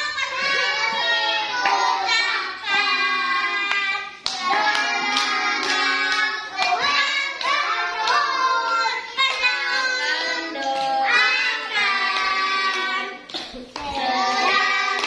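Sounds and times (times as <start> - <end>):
children clapping: 0.0 - 15.0
children singing: 0.0 - 15.0.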